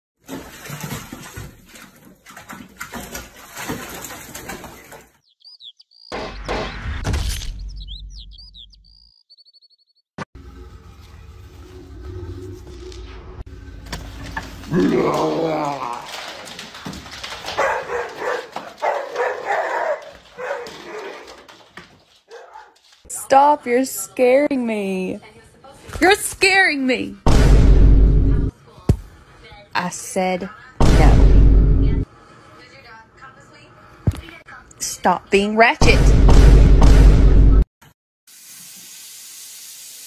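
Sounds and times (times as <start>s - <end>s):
cat splashing in bathtub water: 0.2s - 5.2s, 14.9s - 18.8s
dog barking: 17.6s - 21.5s, 22.3s - 22.8s.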